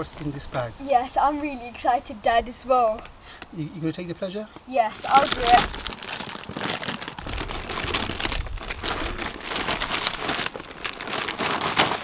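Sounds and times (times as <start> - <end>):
compost pattering onto tarp: 4.8 - 12.0
plastic bag crinkling: 4.8 - 12.0.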